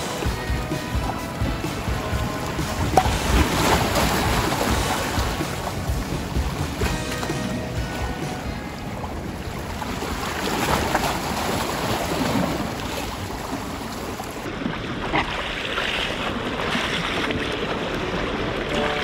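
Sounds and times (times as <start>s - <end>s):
sea waves splashing on concrete: 0.0s - 19.0s.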